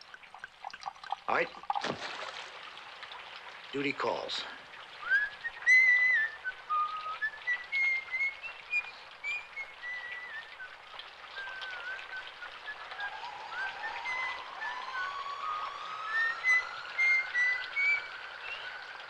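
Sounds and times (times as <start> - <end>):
high whistled melody: 5.0 - 19.0
long rising whistle-like tone: 5.0 - 19.0.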